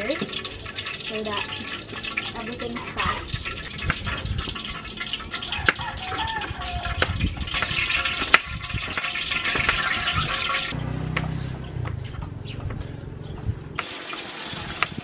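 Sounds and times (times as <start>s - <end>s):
fish sizzling in hot oil: 0.0s - 10.8s, 13.8s - 15.0s.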